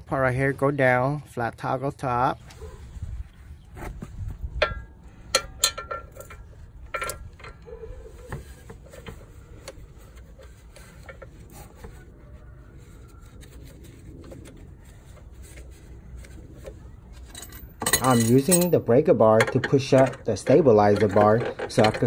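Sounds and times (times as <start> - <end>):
metal parts clinking: 4.6 - 7.7, 17.2 - 18.8.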